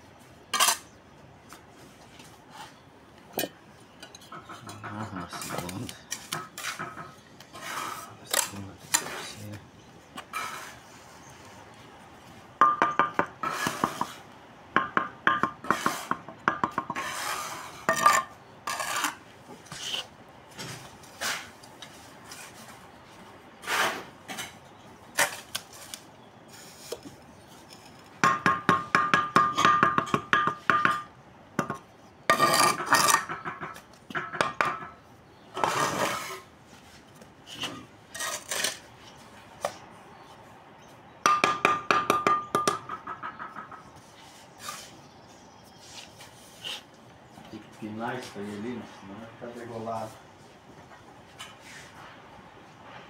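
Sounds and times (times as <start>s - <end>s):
trowel scraping mortar: 4.3s - 9.6s, 10.2s - 11.0s, 13.4s - 14.3s, 16.9s - 20.1s, 32.3s - 33.4s, 35.5s - 36.5s, 37.5s - 39.0s
bricks tapping and clinking: 27.8s - 35.0s, 41.3s - 44.0s.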